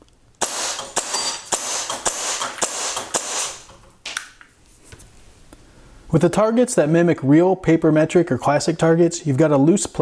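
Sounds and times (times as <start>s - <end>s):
metallic pings on steel targets: 0.4s - 2.1s.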